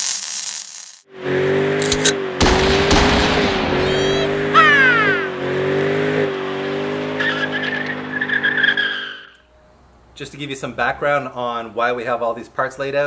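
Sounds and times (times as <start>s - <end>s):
car engine at high revs: 1.2s - 9.2s
tyres spinning and squealing: 6.8s - 9.4s.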